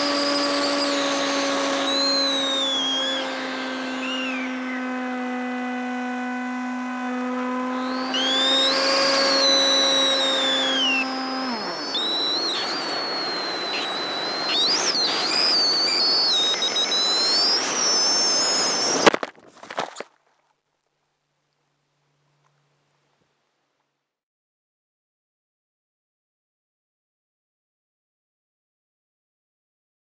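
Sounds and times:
rushing air whistle: 0.0 - 6.1, 6.8 - 19.2
electric motor and propeller whining: 0.0 - 19.8.

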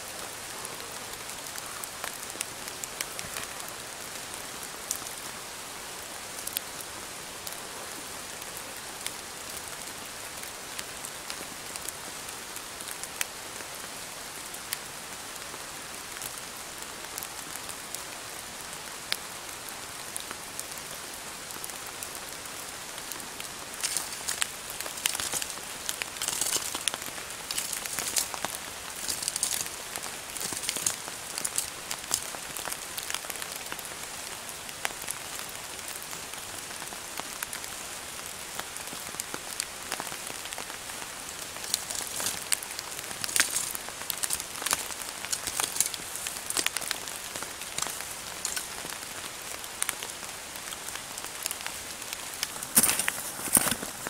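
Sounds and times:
crackling rustles: 0.0 - 12.0, 20.2 - 54.0
steady rain falling: 0.0 - 54.0
raindrops ticking: 20.9 - 37.7, 38.5 - 54.0.

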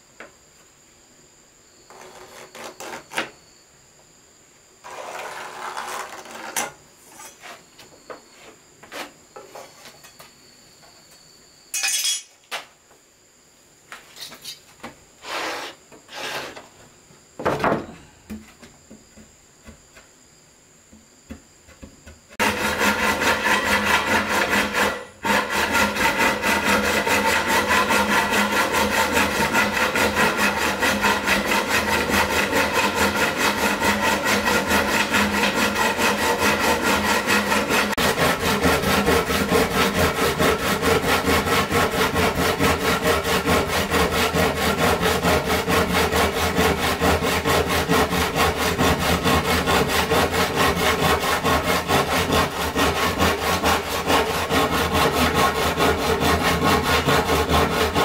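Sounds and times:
saw cutting wood: 4.8 - 6.6, 15.2 - 16.6, 22.4 - 58.0
wood knocking and scraping: 17.4 - 20.1.

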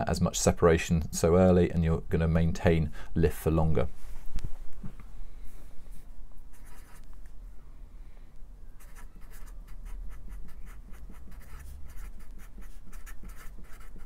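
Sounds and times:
marker pen scratching: 6.5 - 7.1, 8.8 - 14.0.

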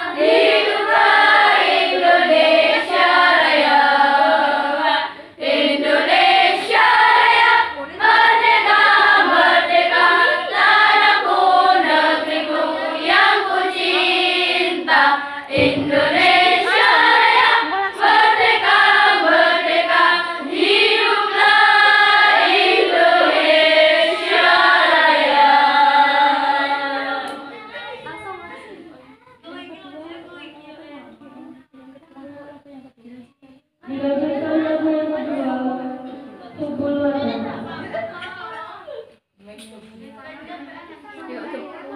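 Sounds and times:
girls singing: 0.0 - 28.2, 33.7 - 38.5
dull thump: 15.6 - 16.5.

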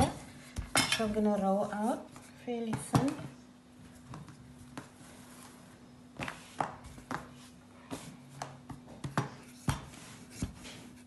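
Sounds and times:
rolling pin rolling pastry: 4.0 - 11.0.

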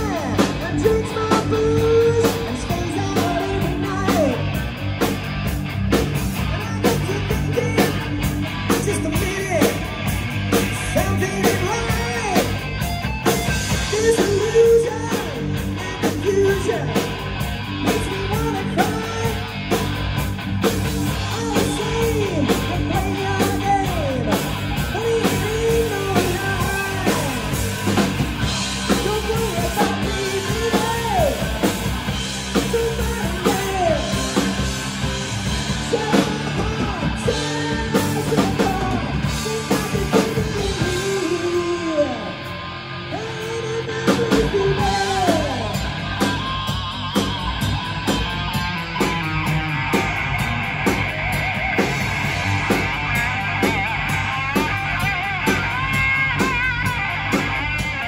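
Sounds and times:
man singing into a microphone: 0.0 - 4.4, 10.8 - 12.5, 13.8 - 17.0, 21.2 - 27.4, 28.9 - 31.5, 32.6 - 34.2, 35.8 - 42.4, 43.1 - 45.8
drum kit: 0.0 - 58.0
electric guitar: 0.0 - 58.0.

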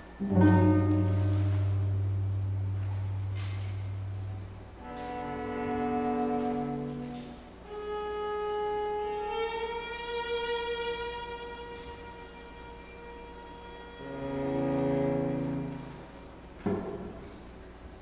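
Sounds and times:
chamber quartet playing classical music: 0.0 - 16.6.

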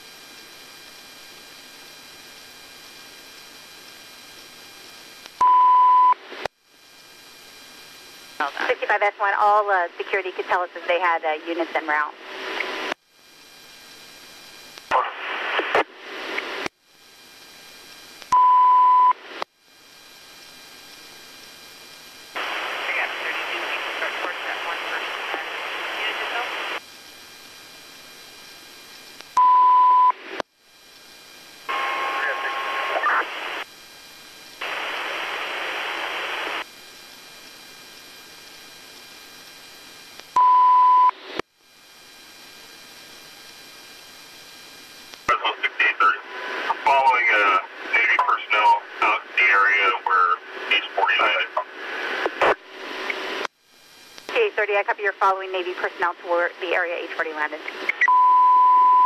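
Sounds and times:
radio static hiss: 0.0 - 59.0
radio click: 22.4 - 26.8
single-pitch beep: 58.0 - 59.0.

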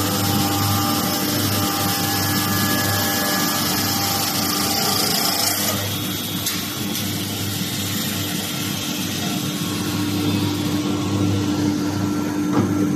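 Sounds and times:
wood lathe machine hum: 0.0 - 12.4.

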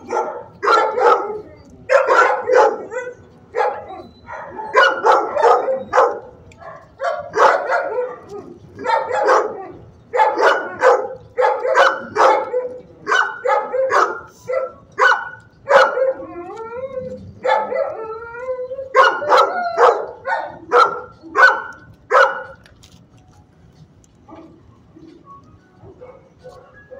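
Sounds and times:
dog howling: 0.0 - 6.3, 7.1 - 21.7
dog barking: 0.0 - 16.2, 17.4 - 18.0, 19.0 - 22.6.

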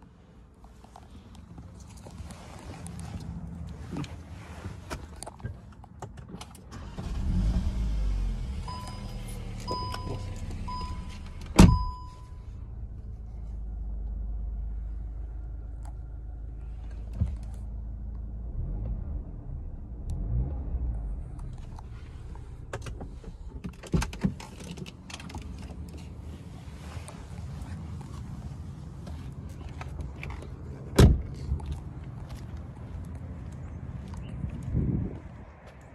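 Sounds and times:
low engine hum: 0.0 - 35.9
car warning chime beeping: 8.6 - 12.4
clicks and knocks in car cabin: 22.7 - 26.1.

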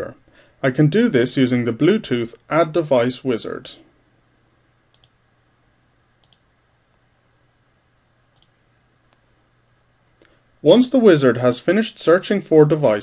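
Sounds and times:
computer mouse clicks: 4.9 - 5.2, 6.2 - 6.5, 8.3 - 9.2.

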